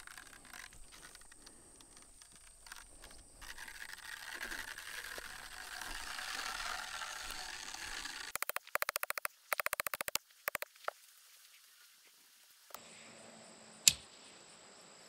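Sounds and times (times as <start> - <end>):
rapid metallic clicking: 0.0 - 10.7.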